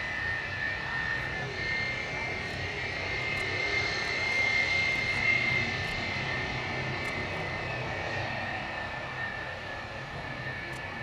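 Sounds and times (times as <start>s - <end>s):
jet engines whining: 0.0s - 11.0s.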